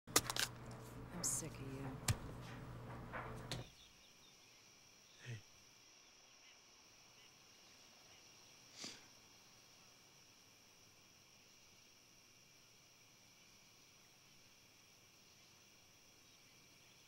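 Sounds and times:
crickets chirring: 3.6s - 17.0s.

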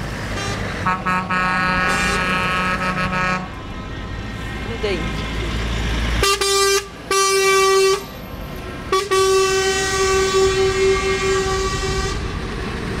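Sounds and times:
low rumble of passing lorries: 0.0s - 13.0s
lorry air horn blasts: 0.4s - 3.5s, 8.9s - 12.3s.

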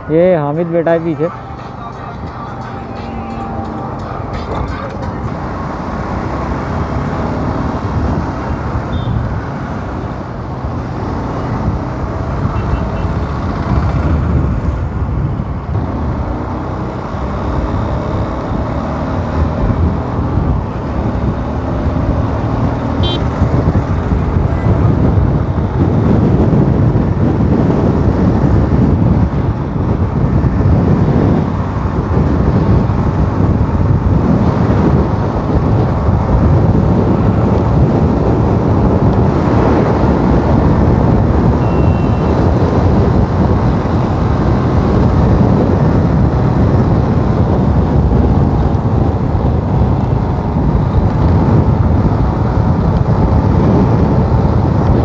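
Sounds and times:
road noise: 0.0s - 55.0s
motorcycle engine: 1.2s - 54.2s.

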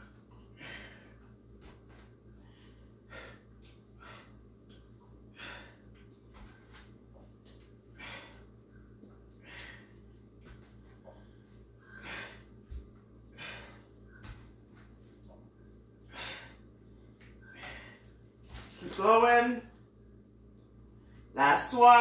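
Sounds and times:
steady low hum: 0.0s - 22.0s
person breathing hard: 0.4s - 1.3s, 2.3s - 4.5s, 5.2s - 6.0s, 7.9s - 8.6s, 9.3s - 10.1s, 11.1s - 14.5s, 16.0s - 18.2s.

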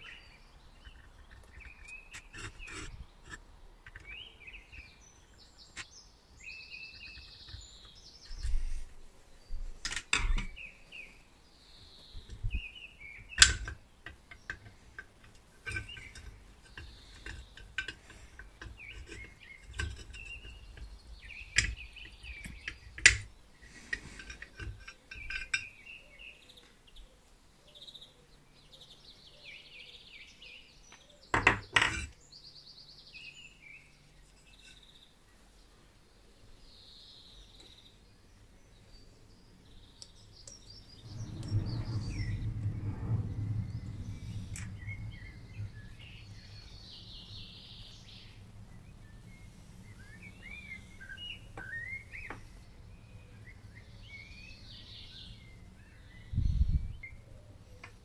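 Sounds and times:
birds chirping: 0.0s - 58.0s
metal clicks and knocks: 9.8s - 10.5s, 13.3s - 23.3s, 23.9s - 25.7s.

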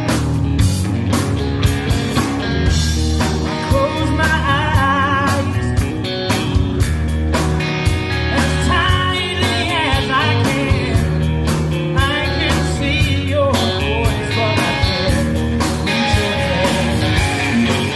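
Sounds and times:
bass: 0.0s - 17.9s
drum kit: 0.0s - 17.9s
electric guitar: 0.0s - 17.9s
person singing: 3.4s - 6.5s, 8.2s - 17.9s.

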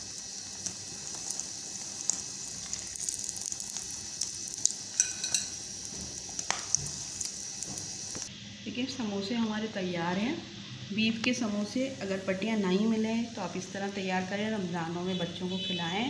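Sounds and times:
oil sizzling with crackles: 0.0s - 8.4s.

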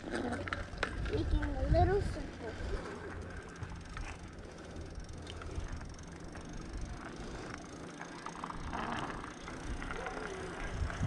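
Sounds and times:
bicycle tyres rumbling on pavement: 0.0s - 11.0s
bike clicks and rattles: 0.0s - 11.0s
wind on microphone: 9.7s - 11.0s.

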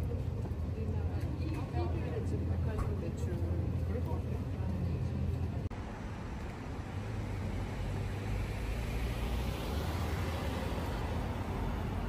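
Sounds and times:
rumble of road traffic: 0.0s - 12.0s
vehicle passing: 5.8s - 12.0s.

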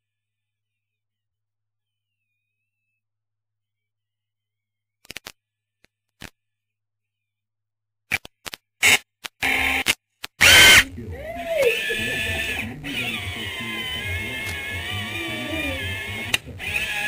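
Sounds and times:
robot electric motors whirring: 10.4s - 10.8s, 11.4s - 17.0s
wavering tones: 10.7s - 16.4s.

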